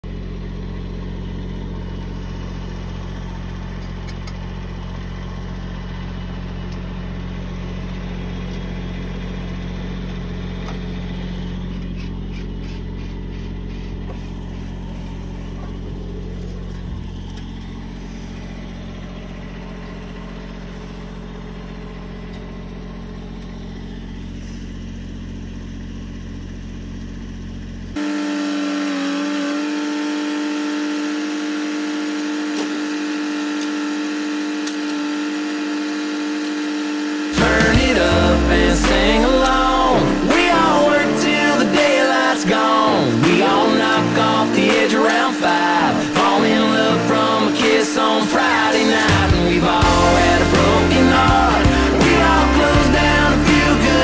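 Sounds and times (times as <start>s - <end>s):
diesel engine humming: 0.0s - 54.0s
steady pitched tones: 37.3s - 54.0s.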